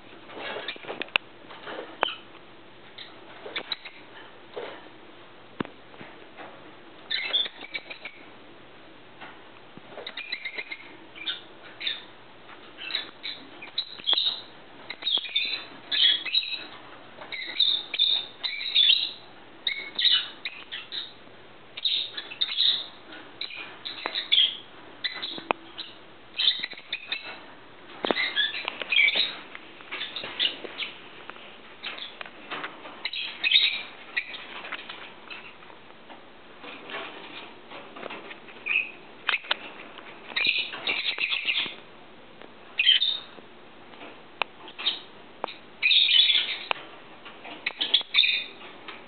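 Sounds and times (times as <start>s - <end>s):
budgerigars chirping: 2.0s - 2.3s, 3.0s - 4.7s, 7.1s - 8.3s, 10.0s - 12.1s, 12.7s - 21.2s, 21.8s - 27.4s, 28.0s - 31.0s, 31.8s - 32.2s, 33.0s - 35.6s, 38.6s - 39.6s, 40.3s - 41.8s, 42.8s - 43.4s, 44.7s - 46.8s, 47.6s - 48.6s.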